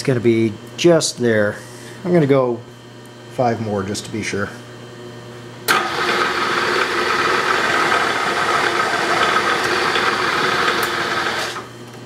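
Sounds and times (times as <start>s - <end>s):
milling machine drill cutting metal: 5.7s - 11.7s.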